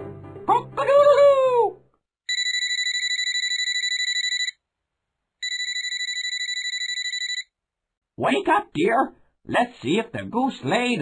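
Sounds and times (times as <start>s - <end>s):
alarm clock bell ringing: 2.3s - 4.6s, 5.4s - 7.5s.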